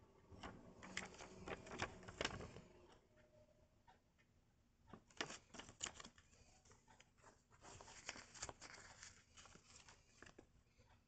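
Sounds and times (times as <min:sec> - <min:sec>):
paper rustling: 0:00.3 - 0:02.7, 0:04.9 - 0:10.5.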